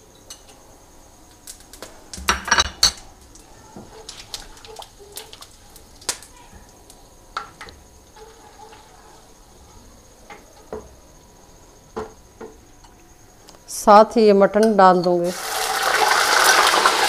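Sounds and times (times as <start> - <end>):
spices popping in hot oil: 1.2 - 8.1, 15.2 - 17.0.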